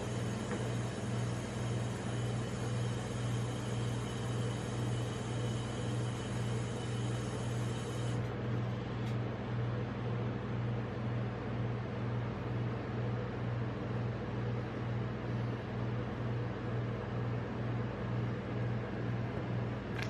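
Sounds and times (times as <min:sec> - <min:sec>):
refrigeration unit humming: 0:00.0 - 0:20.0.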